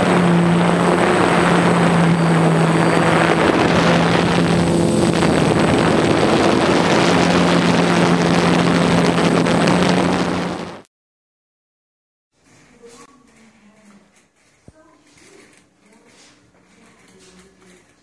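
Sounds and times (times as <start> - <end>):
drone motors and propellers humming: 0.0 - 10.8
wind noise on microphone: 0.0 - 10.8.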